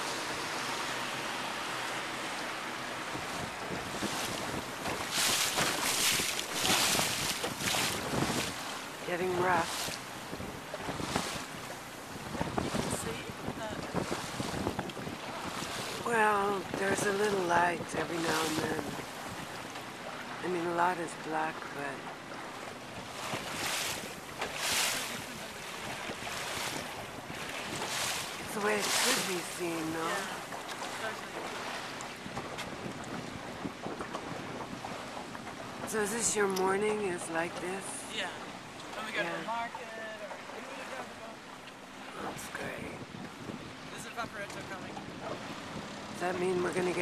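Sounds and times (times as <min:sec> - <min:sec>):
water rushing against boat hull: 0:00.0 - 0:47.0
wind on microphone: 0:03.1 - 0:19.6, 0:23.0 - 0:35.1, 0:42.2 - 0:47.0.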